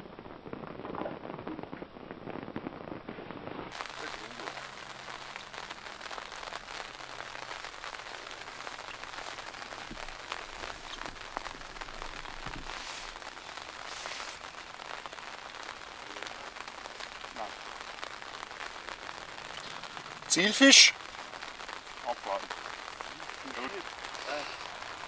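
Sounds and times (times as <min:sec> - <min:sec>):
rain pattering: 0:00.0 - 0:25.0.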